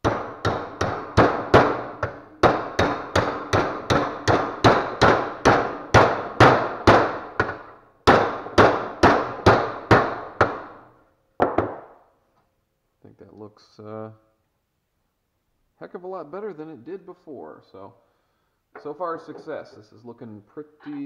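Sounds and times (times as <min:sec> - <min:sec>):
hammer striking steel: 0:00.0 - 0:10.8.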